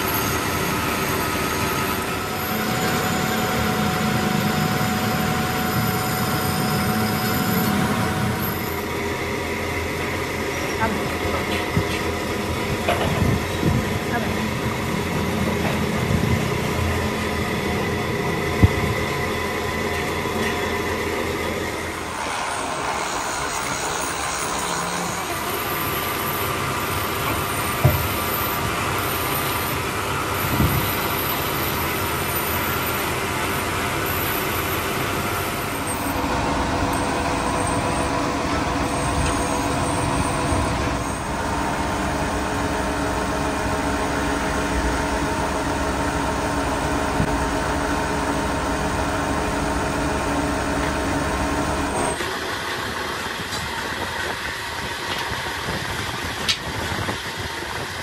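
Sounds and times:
machine hum: 0.4s - 9.8s, 35.4s - 52.2s.

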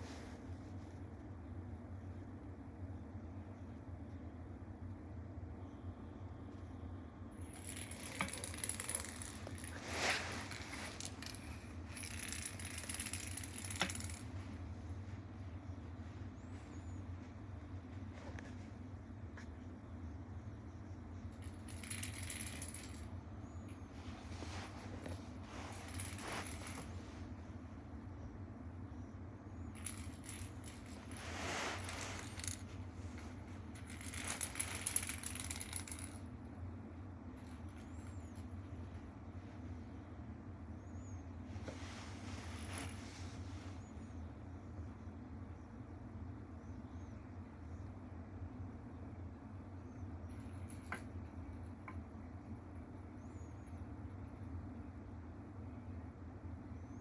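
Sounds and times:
plastic ball toy rattling on floor: 7.4s - 14.7s, 21.3s - 23.8s, 24.6s - 27.0s, 29.7s - 36.3s, 50.3s - 51.7s
plastic ball toy clicking on floor: 10.9s - 14.3s.

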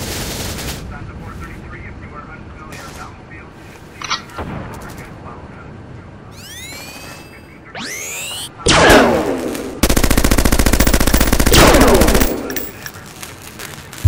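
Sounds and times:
rapid automatic gunfire burst: 8.8s - 12.8s.

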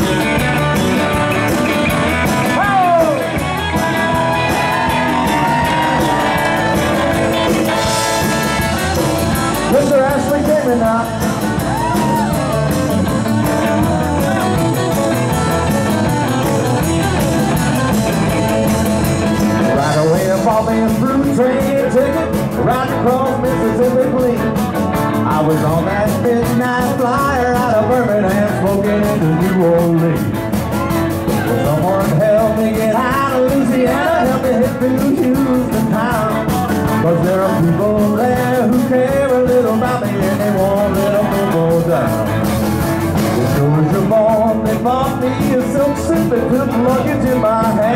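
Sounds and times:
rock band playing: 0.0s - 47.9s
men singing: 2.5s - 12.7s, 19.6s - 24.6s, 25.2s - 30.3s, 31.3s - 42.3s, 43.4s - 47.9s.

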